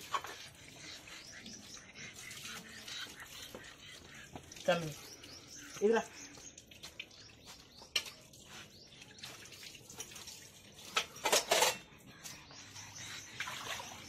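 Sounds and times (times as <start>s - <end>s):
steel dishes clinking: 11.0s - 11.9s.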